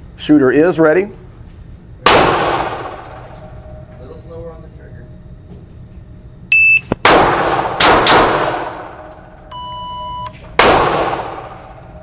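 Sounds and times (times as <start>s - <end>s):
revolver shots echoing indoors: 2.0s - 4.0s, 6.8s - 9.5s, 10.3s - 12.0s
shot timer beeps: 6.5s - 7.0s, 9.5s - 10.4s.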